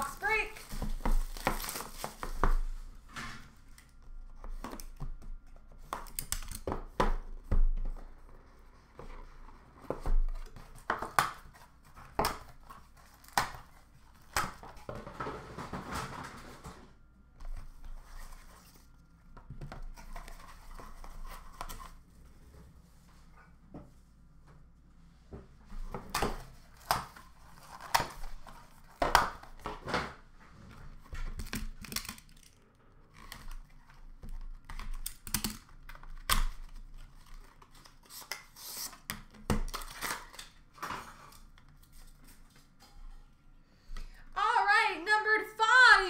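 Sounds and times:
plastic shrink-wrap crinkling and tearing: 0.2 - 2.4.

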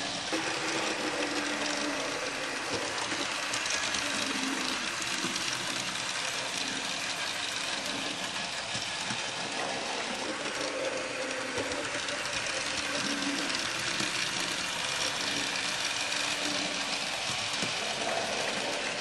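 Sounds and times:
electric motor whirring: 0.0 - 19.0
wheels clicking over rails: 0.0 - 19.0.

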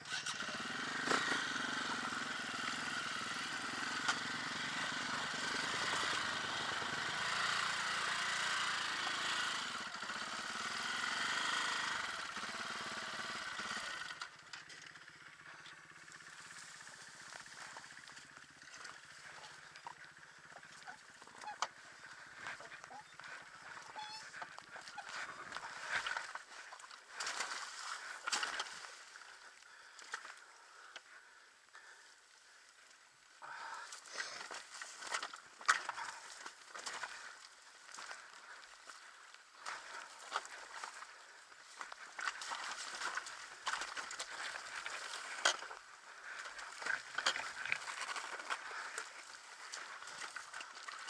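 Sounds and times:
motorbike rolling over rocks: 0.1 - 30.9, 34.2 - 51.0
tyres crackling on stones: 33.9 - 51.0.

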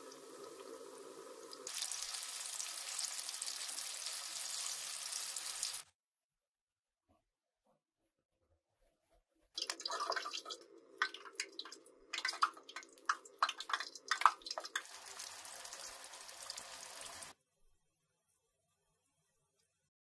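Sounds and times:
food crackling and popping in oil: 0.0 - 5.9, 9.6 - 17.3
steady sizzle of frying: 0.0 - 5.9, 13.4 - 17.4.

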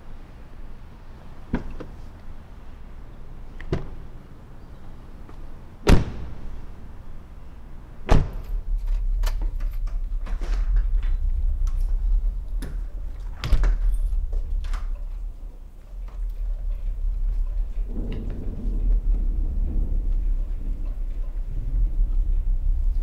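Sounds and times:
low steady rumble: 0.0 - 23.0
heavy car door slams: 5.8 - 6.5, 8.0 - 8.7.

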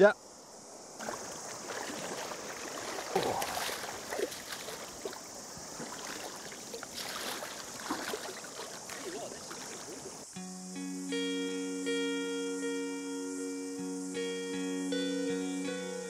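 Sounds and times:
stream rushing: 0.8 - 10.4
wading footsteps splashing: 1.0 - 10.3.

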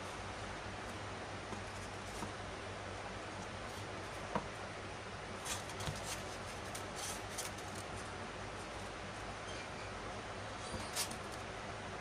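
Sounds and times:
foam pieces rubbing together: 5.4 - 8.0, 10.7 - 11.4.

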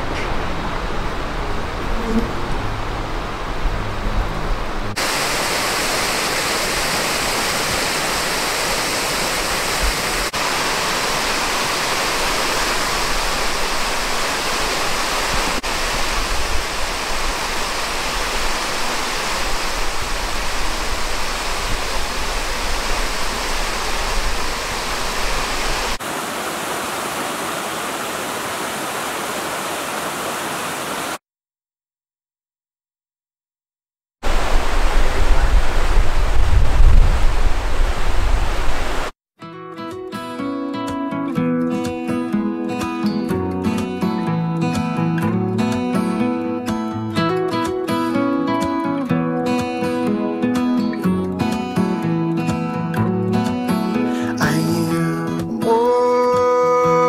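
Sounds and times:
waterfall rushing: 0.0 - 31.2, 34.2 - 39.1.

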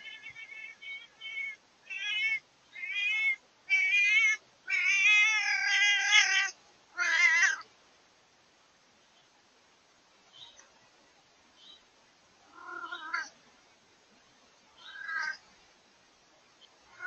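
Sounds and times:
cat meowing: 0.0 - 7.6, 12.5 - 13.3, 14.8 - 15.4.

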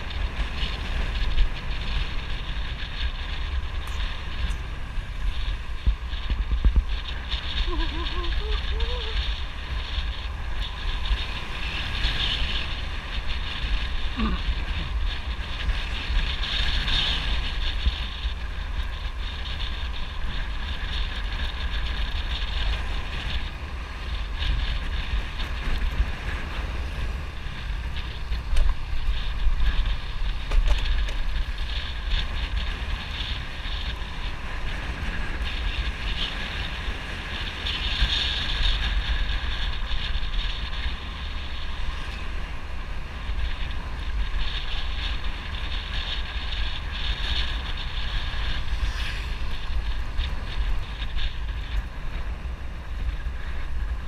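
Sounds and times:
motorbike engine: 0.0 - 54.0
road noise: 0.0 - 54.0
wind rumbling on microphone: 0.0 - 54.0.

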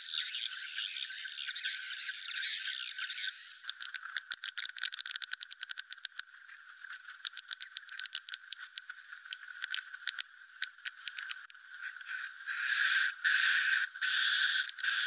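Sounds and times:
swiftlets clicking: 3.6 - 6.2, 7.3 - 11.5
short high bird chirp: 11.8 - 15.0.

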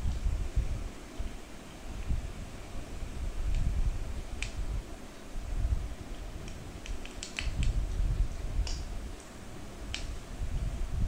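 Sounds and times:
oil crackles and pops: 6.4 - 8.0.

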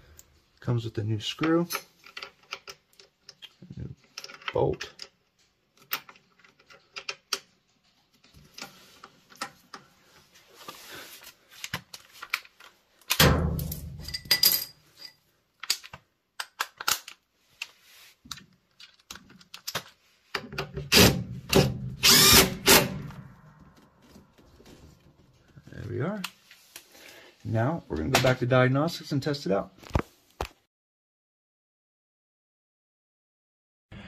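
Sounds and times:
cordless driver running: 22.0 - 22.6.

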